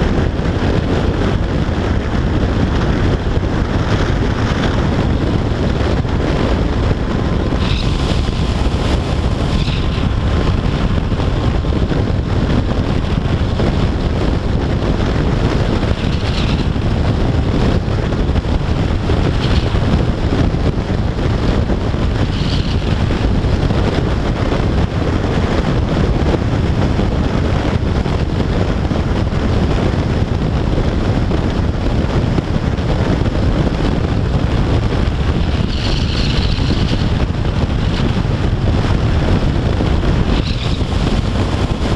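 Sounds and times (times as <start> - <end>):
motorcycle engine drone: 0.0 - 41.9
wind rushing on microphone: 0.0 - 41.9.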